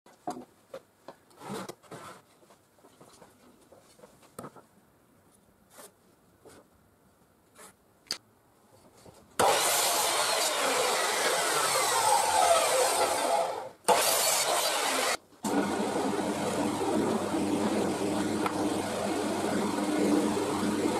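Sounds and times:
electric mitre saw running: 9.4 - 20.9.

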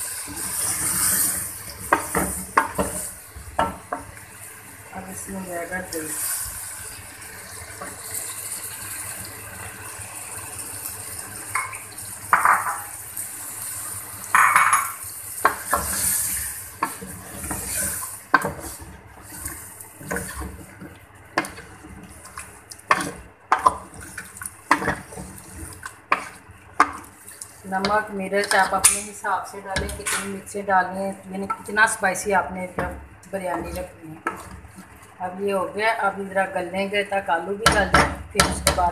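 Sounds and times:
food frying with a hiss: 0.0 - 36.5
utensils knocking against a pot: 14.3 - 15.8, 22.9 - 23.9
utensils scraping a pot: 15.7 - 29.1, 33.3 - 35.0.

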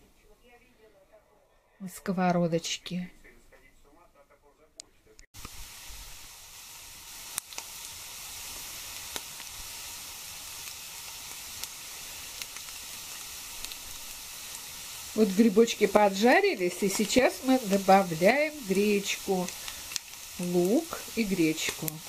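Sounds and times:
small pops and crackles: 4.8 - 6.0, 7.1 - 15.2, 15.8 - 22.0
mushrooms sizzling in frying pan: 5.4 - 22.0.

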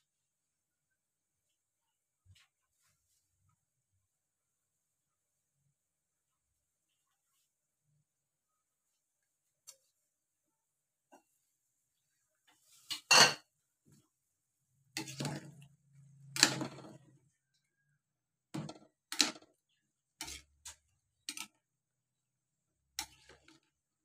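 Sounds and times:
ladle scraping metal pot: 14.9 - 17.1, 20.2 - 21.5.

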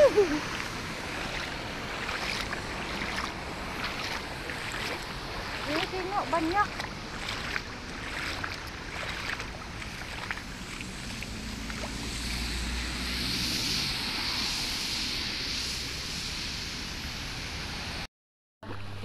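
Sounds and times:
footsteps on wet road: 0.0 - 12.5
feet splashing through water: 0.0 - 13.1
traffic on wet road: 0.0 - 18.1
wind: 0.0 - 19.0.

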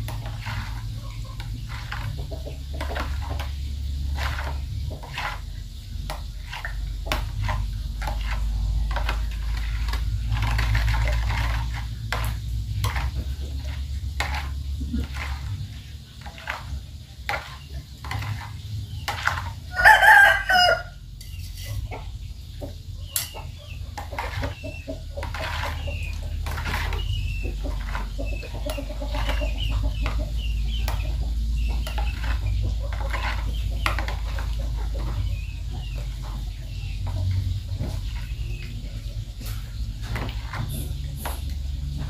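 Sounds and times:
chicken calling: 19.7 - 21.0.

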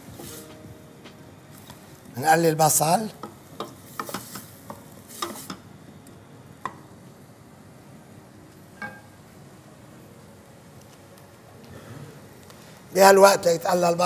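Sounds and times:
onions sizzling in butter: 2.7 - 5.7.

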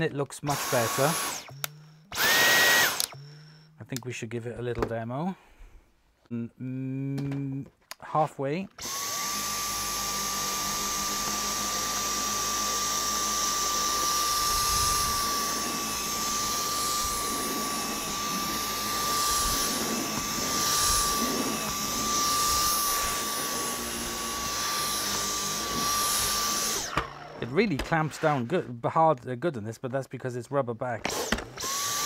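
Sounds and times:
vacuum cleaner motor whine: 0.5 - 3.7, 8.8 - 28.5, 31.1 - 32.0.

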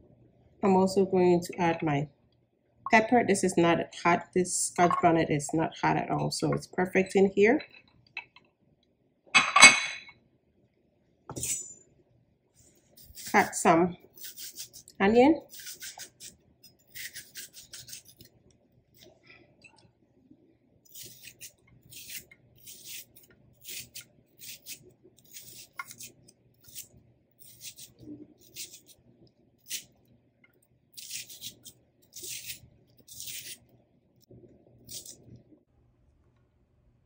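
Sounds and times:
knife slicing onion: 13.0 - 18.3, 20.9 - 29.0, 29.6 - 29.9, 31.0 - 33.7, 34.8 - 35.3.

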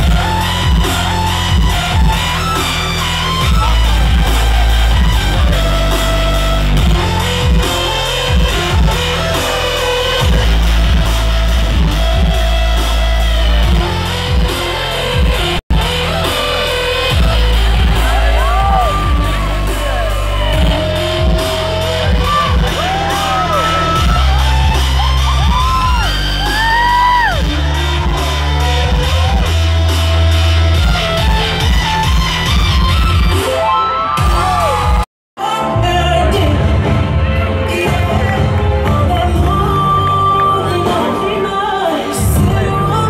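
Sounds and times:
rock music over loudspeakers: 0.0 - 43.0
high rising and falling whoops: 17.5 - 29.6.

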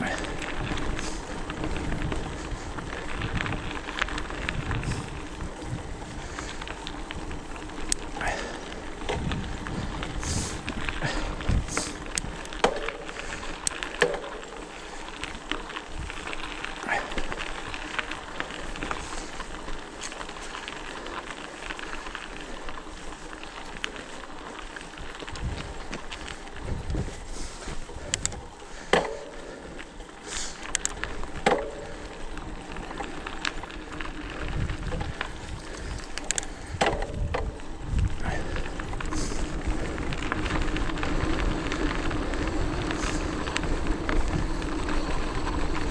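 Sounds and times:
bike clicks and rattles: 0.0 - 45.9
bike tyres rolling on trail: 0.0 - 45.9
crackles of twigs and gravel: 0.0 - 45.9.

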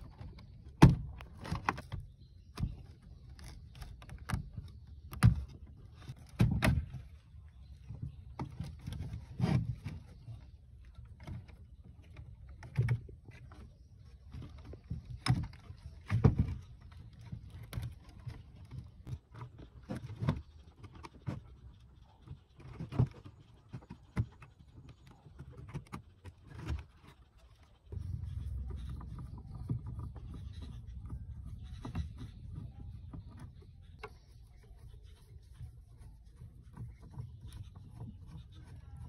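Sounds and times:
low rumble: 27.9 - 34.8.

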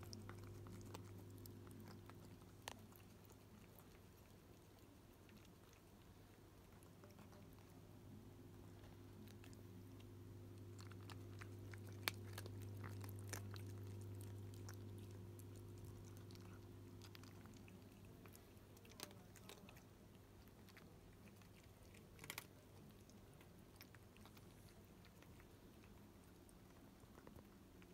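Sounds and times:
cat crunching dry kibble: 0.0 - 27.9
aquarium pump humming: 8.0 - 15.8.

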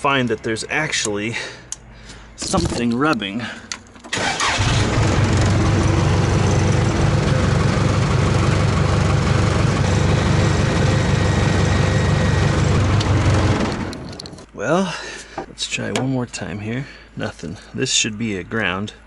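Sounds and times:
diesel engine starting and idling: 4.0 - 14.4.

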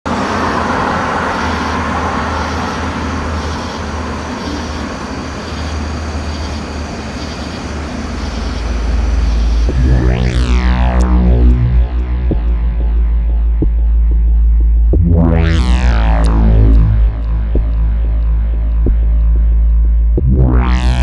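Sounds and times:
distant traffic hiss: 0.1 - 11.6
low hum: 0.1 - 21.0
deep synthesizer bass tone: 8.2 - 21.0.

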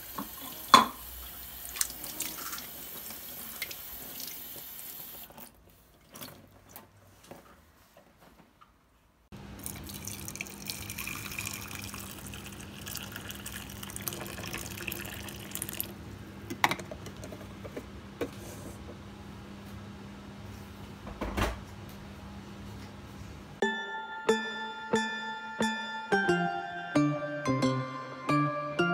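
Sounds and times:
water pouring into plastic bowl: 9.6 - 15.9.

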